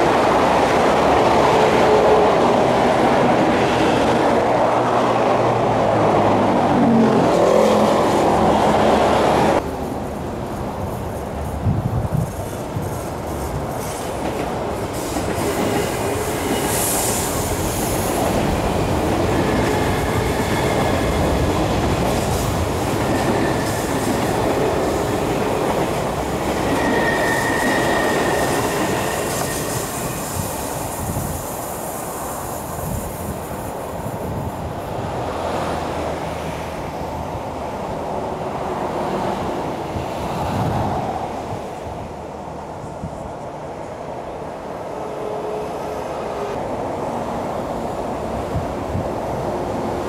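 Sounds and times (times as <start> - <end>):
train wheels rumbling on rails: 0.0 - 44.2
high wheel squeals: 26.5 - 31.1.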